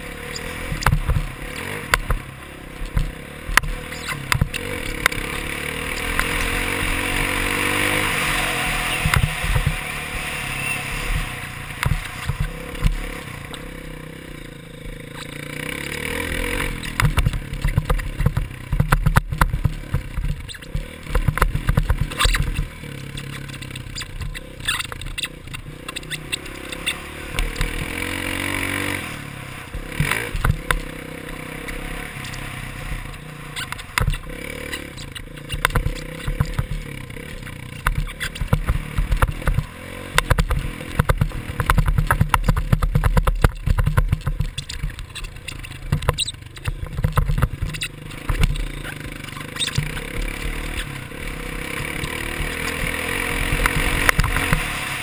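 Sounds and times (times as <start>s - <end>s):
dirt bike engine revving: 0.0s - 55.0s
bike knocking and clattering: 0.4s - 8.0s, 11.2s - 28.9s, 29.8s - 55.0s.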